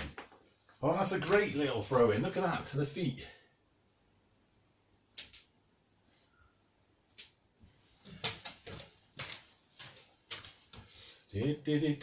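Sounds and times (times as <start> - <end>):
soft rustling of movement: 7.6 - 11.3.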